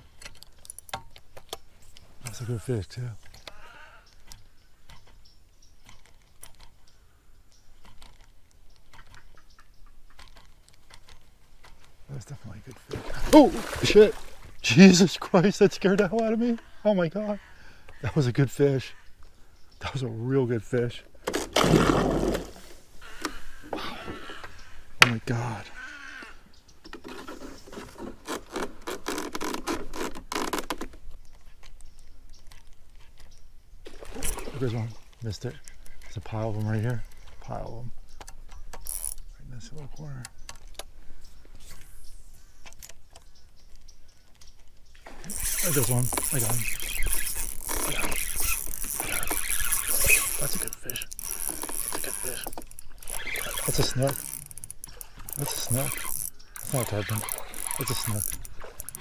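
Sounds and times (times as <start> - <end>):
fishing reel clicking: 38.7 - 39.3, 45.3 - 59.0
scratching and rubbing scrapes: 45.2 - 54.6.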